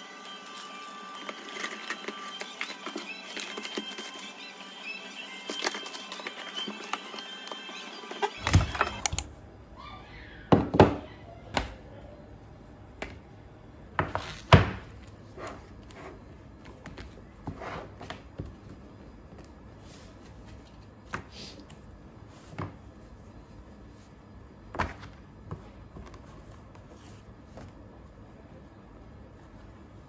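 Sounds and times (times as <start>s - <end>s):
card and paper rustling: 0.5s - 4.5s, 5.4s - 9.0s.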